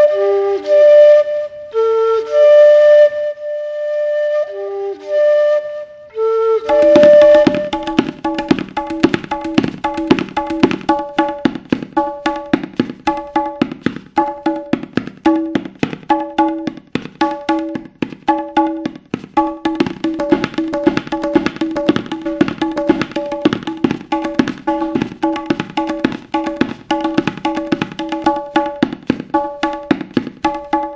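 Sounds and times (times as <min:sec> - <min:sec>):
tabla treble drum strokes: 0:06.7 - 0:30.9.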